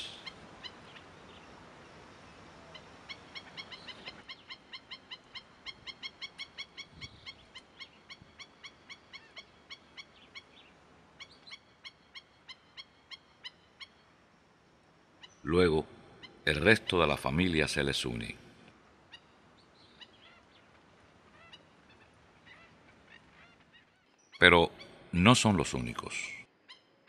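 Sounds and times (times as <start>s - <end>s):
faint high bird calls: 0.0s - 14.3s, 19.0s - 27.0s.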